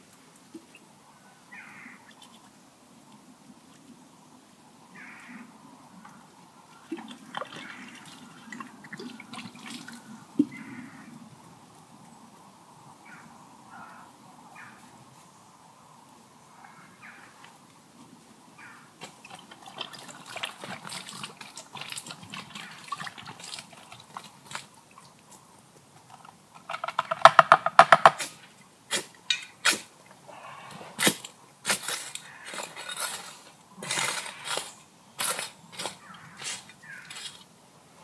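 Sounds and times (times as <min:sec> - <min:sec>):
water glugging out of bottle: 0:19.1 - 0:24.7
digging in earth: 0:28.0 - 0:37.5.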